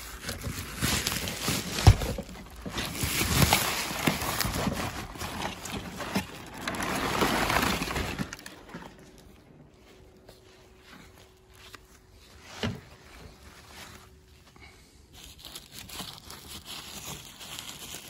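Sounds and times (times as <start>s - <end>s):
packaging rustling and knocking: 0.1s - 9.2s.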